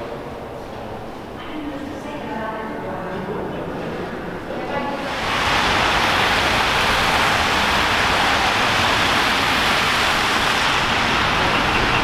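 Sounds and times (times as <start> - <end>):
tyres hissing on wet road: 4.9 - 12.0.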